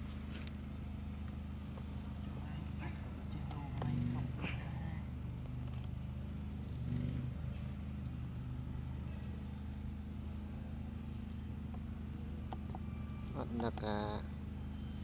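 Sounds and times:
low engine drone: 0.0 - 15.0.

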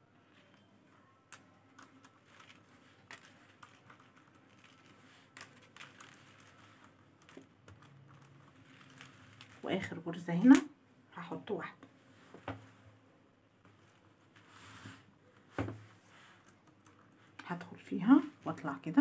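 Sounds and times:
beads clicking together: 1.3 - 9.6.

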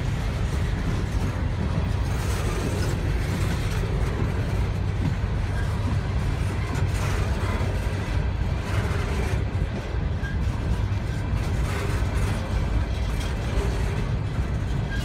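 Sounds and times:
train cars rumbling on rails: 0.0 - 15.0.

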